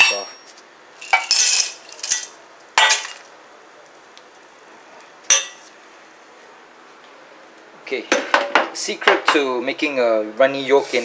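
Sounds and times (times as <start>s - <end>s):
ice cubes clattering into saucepan: 1.0s - 3.2s.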